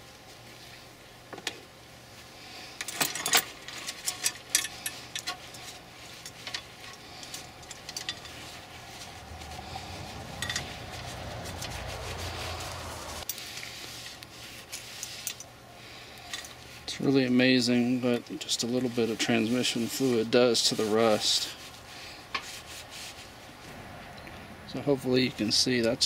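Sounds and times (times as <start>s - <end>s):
chain links clicking and rattling: 2.8s - 8.5s, 10.1s - 11.7s
paper towel wiping chain: 4.7s - 15.4s, 16.6s - 23.6s
low rumble: 8.6s - 13.2s, 23.6s - 25.0s.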